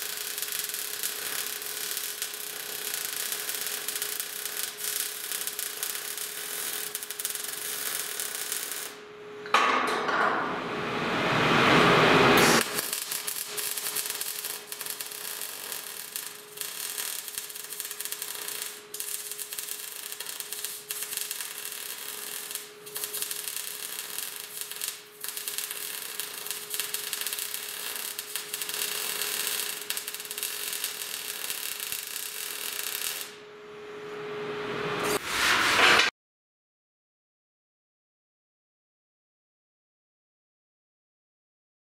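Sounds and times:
welder arc crackling: 0.0 - 9.0, 12.3 - 33.4.

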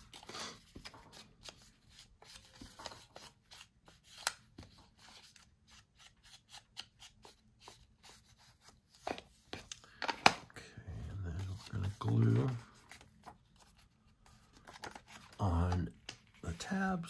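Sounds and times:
scratchy paper strokes: 11.1 - 15.5.

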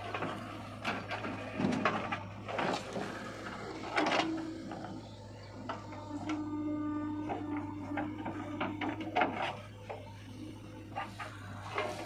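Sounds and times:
bucket scraping and dumping soil: 0.0 - 4.3
diesel engine hum: 0.0 - 12.0
steady whine: 0.0 - 12.0.

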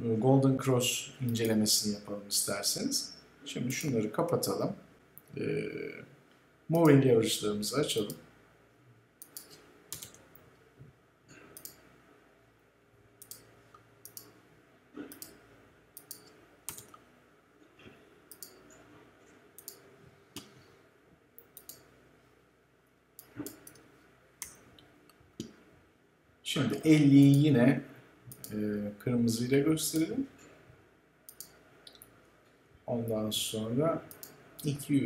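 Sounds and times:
computer mouse and keyboard clicks: 9.2 - 10.5, 15.0 - 15.4, 16.0 - 17.0, 17.8 - 20.6, 23.2 - 25.6.

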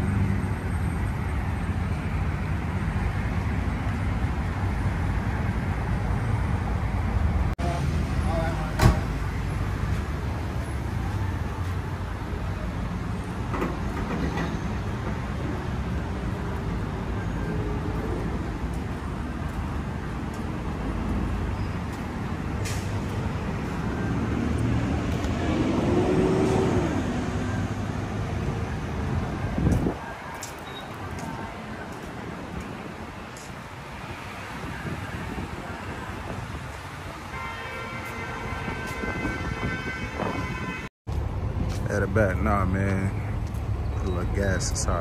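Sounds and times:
road noise: 0.0 - 45.0
vehicle engine rumble: 41.1 - 45.0.

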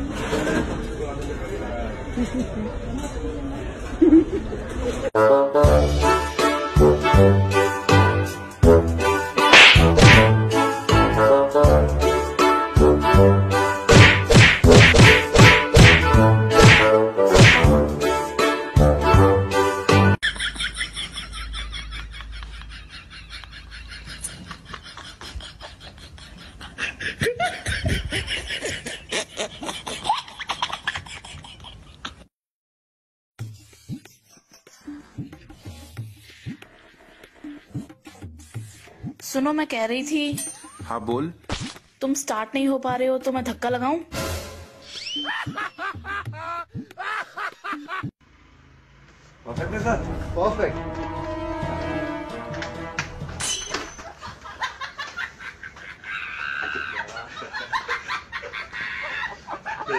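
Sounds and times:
background music with horns: 5.2 - 20.2, 49.5 - 53.4
person laughing: 20.2 - 32.2, 45.1 - 48.1, 54.1 - 59.9
beatbox backing track: 33.4 - 39.2.

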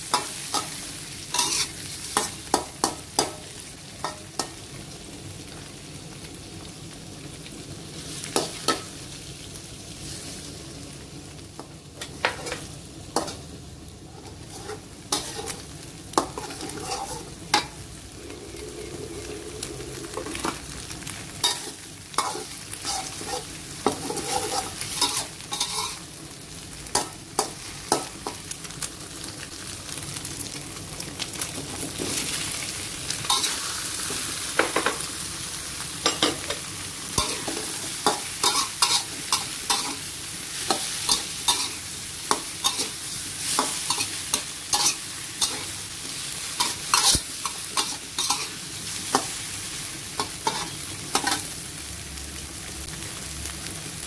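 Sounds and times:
food sizzling in hot oil: 0.0 - 54.0
spatula scraping a metal wok: 0.2 - 2.4, 14.2 - 20.8, 21.4 - 26.1, 37.2 - 45.8, 46.4 - 49.4, 50.2 - 51.5.

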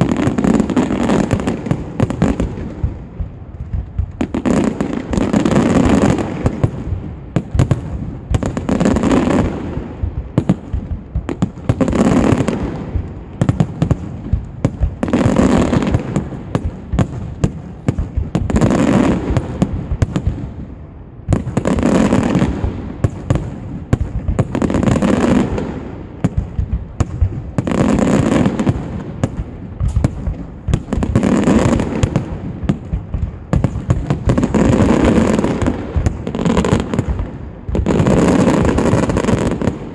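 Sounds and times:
fireworks bursts and bangs: 0.0 - 39.9.

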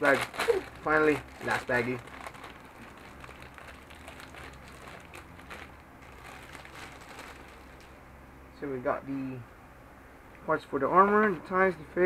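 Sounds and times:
plastic bag crinkling: 0.0 - 8.0
low steady hum: 0.0 - 12.0.

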